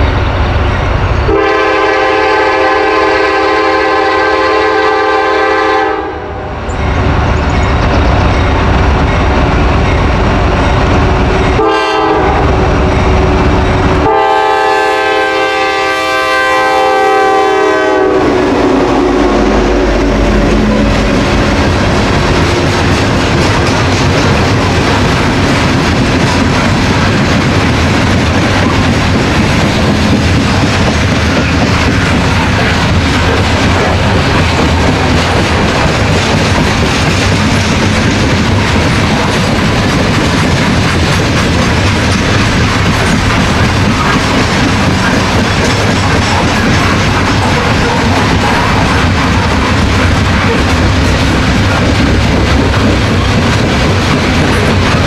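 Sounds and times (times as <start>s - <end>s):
locomotive horn: 1.2s - 6.6s, 11.5s - 22.8s
locomotive engines passing: 6.5s - 55.0s
train wheels clacking on rails: 6.6s - 55.0s.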